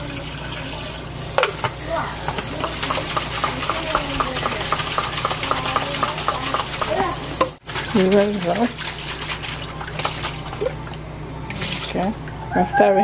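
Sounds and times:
water splashing on steel sink: 1.3s - 12.1s
tap water running into jar: 1.4s - 12.0s.

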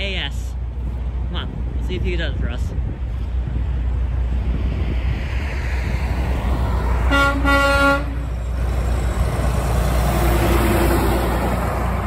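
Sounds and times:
truck engine and tyres passing: 0.0s - 12.0s
truck horn: 7.0s - 8.4s.

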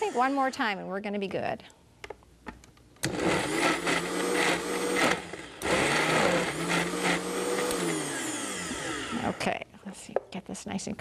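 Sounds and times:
blender motor running: 0.0s - 0.5s, 3.0s - 9.5s.

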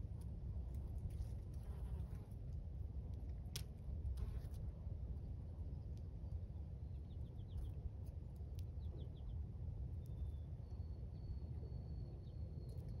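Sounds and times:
faint bird chirps: 10.0s - 13.0s.

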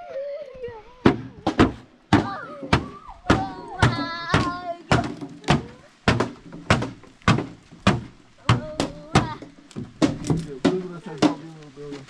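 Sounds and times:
sharp repeated knocks: 1.1s - 11.4s
high voice: 2.2s - 5.9s.

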